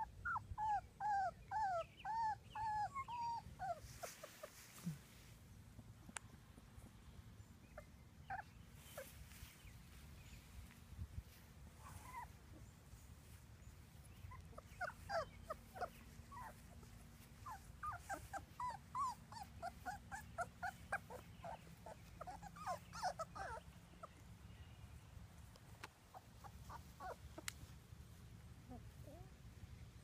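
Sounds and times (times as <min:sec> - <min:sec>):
puppies whimpering and squeaking: 0:00.0 - 0:04.9, 0:07.7 - 0:10.5, 0:11.3 - 0:24.2, 0:26.1 - 0:27.5.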